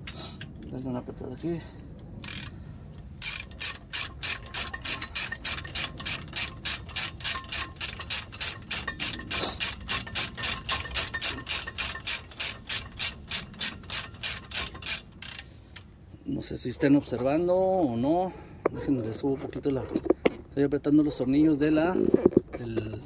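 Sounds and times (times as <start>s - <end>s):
ratchet wrench clicking: 2.2s - 2.6s, 3.2s - 15.9s.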